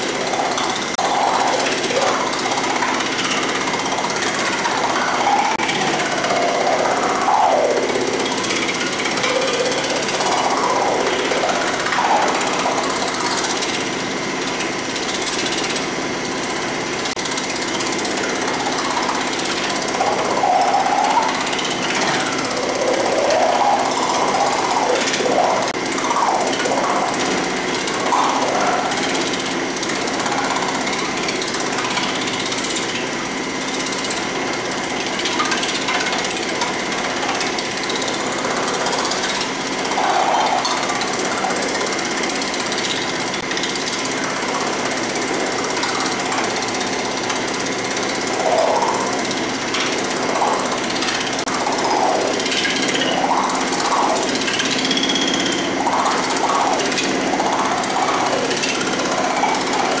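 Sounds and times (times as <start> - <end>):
constant high whine: 0.0 - 60.0
ringing tone: 50.2 - 59.9.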